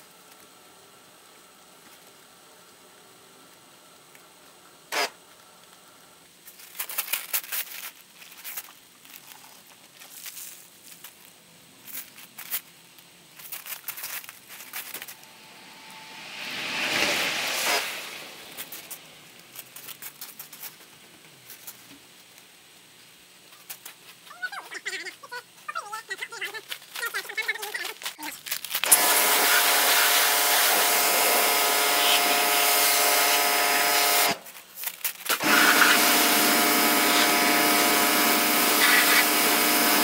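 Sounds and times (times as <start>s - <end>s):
crackles and rubbing of washing: 3.4s - 15.4s, 16.7s - 31.0s, 34.4s - 36.0s
short hiss: 14.3s - 20.8s.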